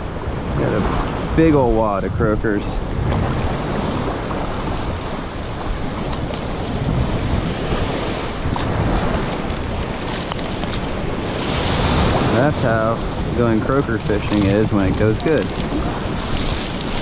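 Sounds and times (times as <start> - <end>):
shallow surf washing: 0.0 - 17.0
wind on microphone: 0.0 - 17.0
net dragged through water: 3.4 - 12.3, 13.7 - 17.0.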